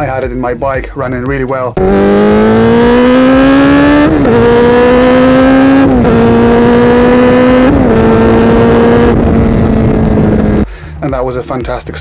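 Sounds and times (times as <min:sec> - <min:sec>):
motorcycle engine accelerating: 0:01.8 - 0:10.6.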